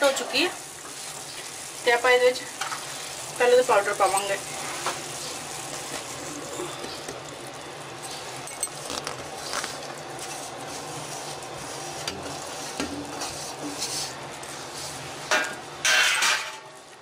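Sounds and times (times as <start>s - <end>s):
sugar syrup bubbling and hissing: 0.0s - 15.3s
utensils clicking against pan: 3.9s - 5.0s.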